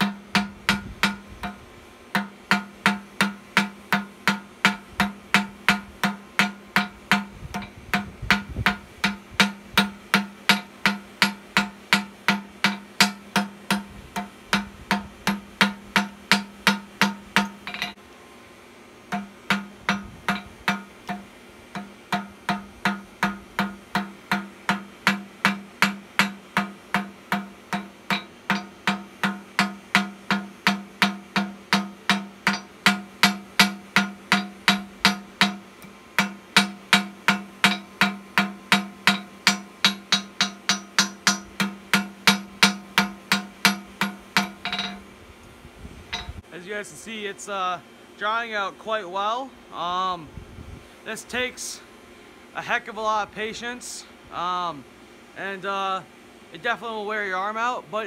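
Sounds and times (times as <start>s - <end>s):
hammer striking hot steel on anvil: 0.0s - 18.0s, 19.1s - 45.1s, 46.1s - 46.4s.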